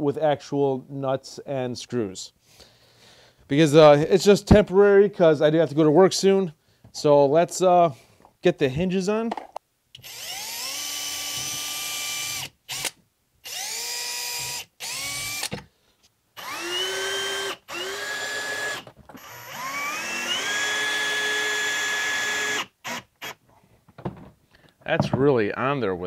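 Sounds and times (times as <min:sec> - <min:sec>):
cordless drill driving screws: 0:10.0 - 0:15.6, 0:16.4 - 0:23.4.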